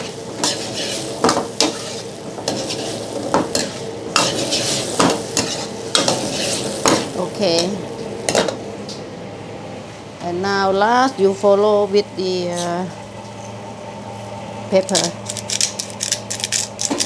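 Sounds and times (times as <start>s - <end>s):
vegetables sizzling in a wok: 0.0s - 9.0s
metal ladle scraping a wok: 0.4s - 3.0s, 3.6s - 7.1s.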